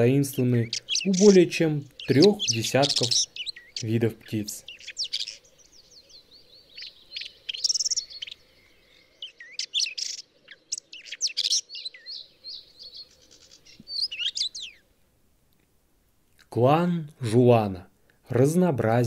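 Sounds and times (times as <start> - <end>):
bird singing chirps and trills: 0.0 - 14.9.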